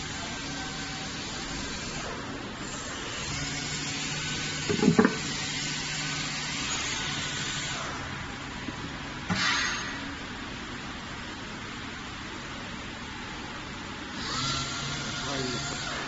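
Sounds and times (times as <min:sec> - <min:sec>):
factory machinery hiss and hum: 0:00.0 - 0:16.0
knocks: 0:04.7 - 0:05.2.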